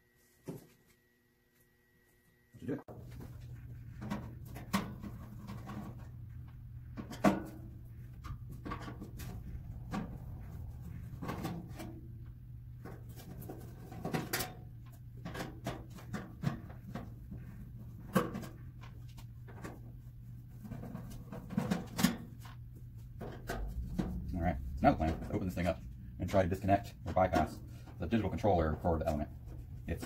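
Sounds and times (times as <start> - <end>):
steady low hum: 1.7 - 30.0.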